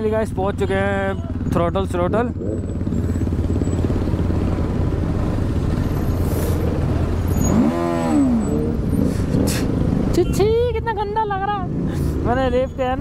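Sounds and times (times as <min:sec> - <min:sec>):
motorcycle engine revving: 0:00.0 - 0:10.2
motorcycle engines rumbling: 0:00.0 - 0:13.0.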